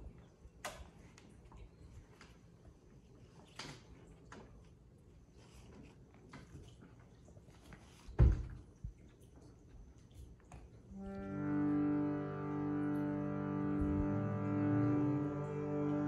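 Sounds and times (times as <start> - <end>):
harmonium chord: 11.0 - 16.0.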